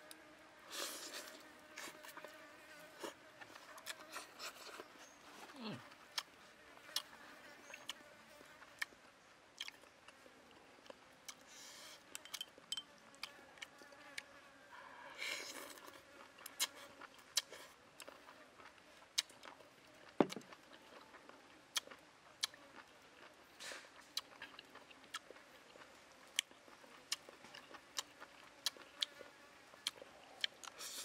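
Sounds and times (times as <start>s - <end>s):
mouth smacks while eating: 15.4s - 19.6s, 26.2s - 31.0s.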